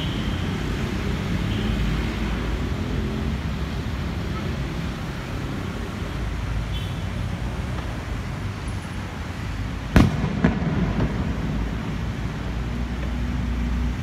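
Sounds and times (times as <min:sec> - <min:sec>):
low rumble of city traffic: 0:00.0 - 0:14.0
fireworks bursting: 0:09.9 - 0:12.1.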